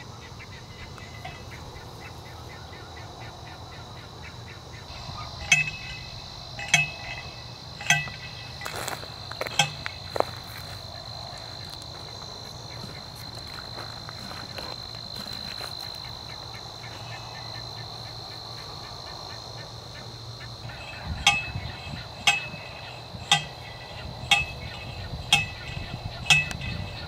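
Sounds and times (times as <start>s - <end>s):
insects trilling: 0.0s - 27.0s
sharp ringing clicks: 1.1s - 1.6s, 4.9s - 10.5s, 20.7s - 27.0s.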